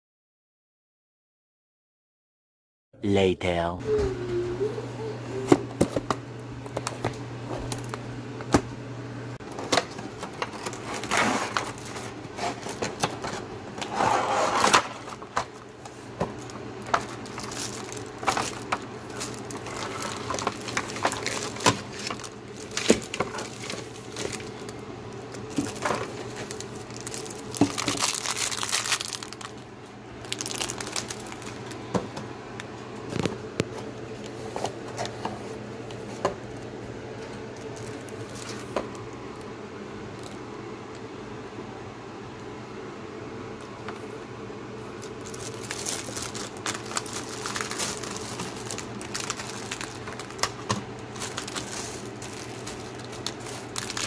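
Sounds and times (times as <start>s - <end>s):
packaging crinkling and rustling: 6.6s - 8.0s, 9.4s - 32.2s, 33.0s - 39.5s, 44.8s - 54.0s.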